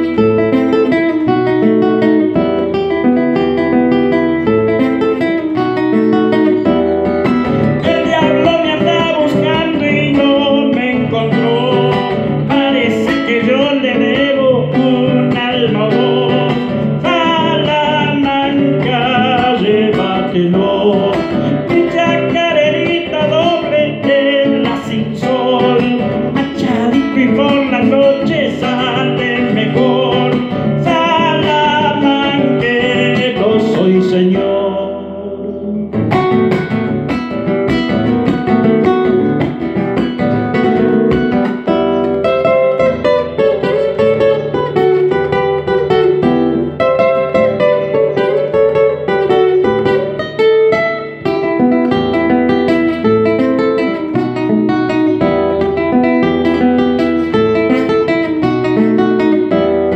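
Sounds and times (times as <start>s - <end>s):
acoustic guitar: 0.0s - 59.9s
man singing: 5.8s - 36.8s.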